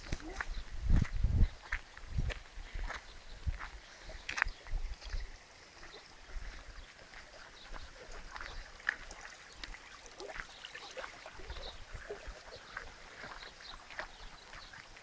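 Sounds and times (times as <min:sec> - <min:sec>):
water trickling and gurgling: 0:03.2 - 0:15.0.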